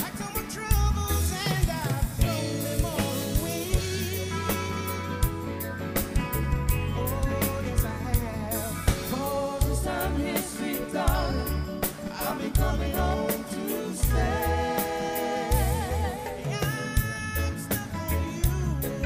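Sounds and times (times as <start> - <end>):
live soul band playing: 0.0 - 19.0
singers holding wavering notes: 6.7 - 17.8
backing vocalists singing: 7.4 - 19.0.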